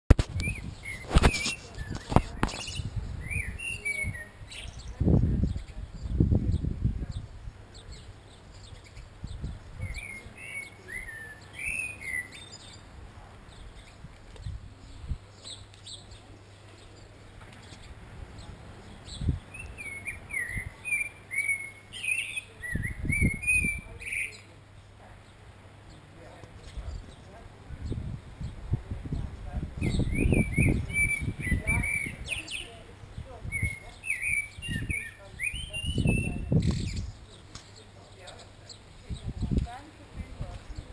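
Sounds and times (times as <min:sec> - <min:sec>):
high thin twittering: 0:00.1 - 0:05.8
low rumbles on microphone: 0:00.1 - 0:10.3, 0:13.0 - 0:15.3, 0:17.6 - 0:20.8, 0:26.6 - 0:37.4, 0:38.9 - 0:40.9
blackbird singing: 0:00.4 - 0:12.9, 0:13.5 - 0:24.6, 0:29.8 - 0:40.9.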